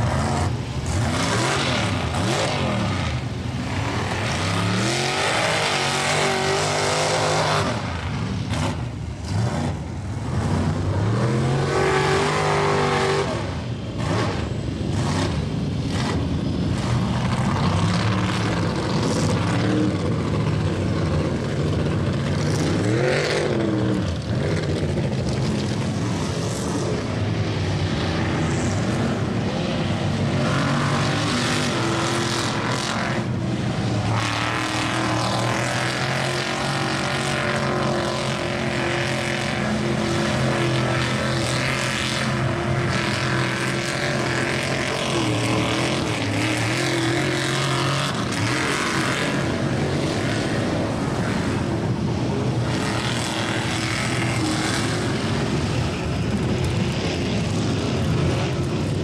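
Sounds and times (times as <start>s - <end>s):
tires churning and spraying mud: 0.0s - 59.0s
truck engines revving: 0.0s - 59.0s.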